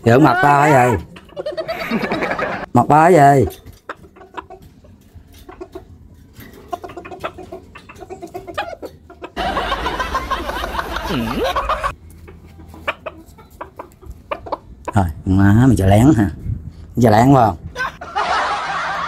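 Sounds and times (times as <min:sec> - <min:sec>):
chickens clucking: 0:00.5 - 0:02.7, 0:03.4 - 0:15.2.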